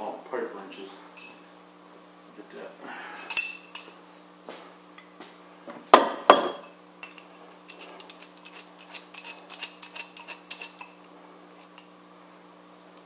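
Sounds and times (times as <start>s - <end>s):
light metallic clinks: 3.3s - 4.0s
metal tools clanking: 3.3s - 4.0s, 6.3s - 10.9s.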